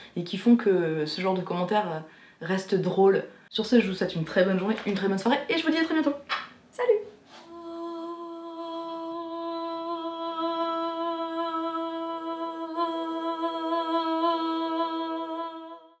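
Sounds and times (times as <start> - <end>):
person humming a note: 7.5 - 16.0.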